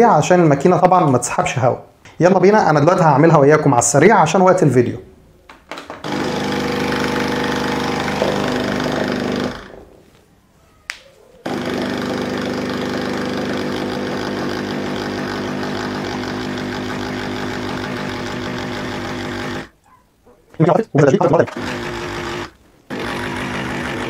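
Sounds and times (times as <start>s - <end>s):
espresso machine pump buzzing: 6.0s - 9.8s, 11.5s - 19.7s, 21.5s - 24.0s.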